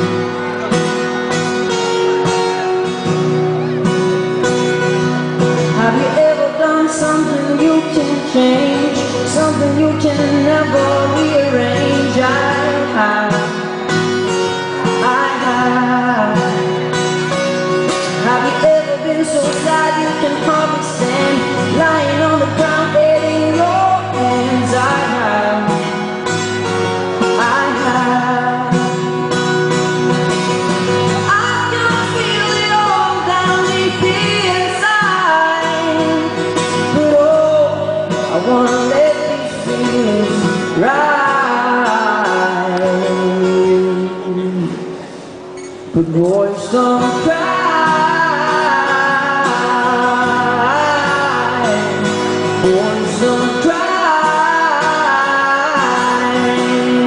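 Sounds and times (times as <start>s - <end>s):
acoustic guitar: 0.0s - 57.0s
man singing: 5.4s - 29.3s, 31.1s - 45.0s, 45.9s - 57.0s.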